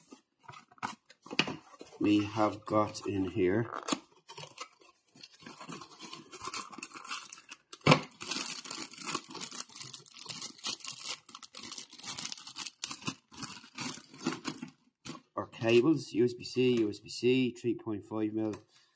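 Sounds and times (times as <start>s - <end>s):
cardboard packaging rubbing: 0.0s - 14.7s
plastic bag crinkling: 0.0s - 14.8s.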